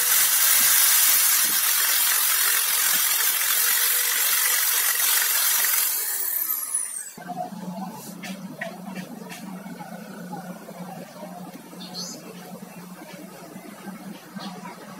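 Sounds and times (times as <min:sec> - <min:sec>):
disc grinding metal: 0:00.0 - 0:07.2
drill spinning down: 0:00.0 - 0:07.2.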